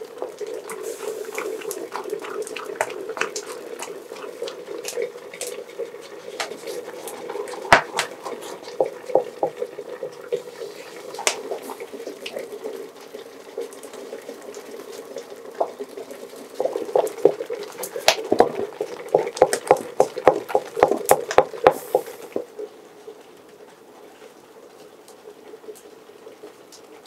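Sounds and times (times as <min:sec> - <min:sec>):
porridge bubbling and plopping: 0:00.0 - 0:27.0
wooden spoon scraping pot: 0:00.8 - 0:12.2.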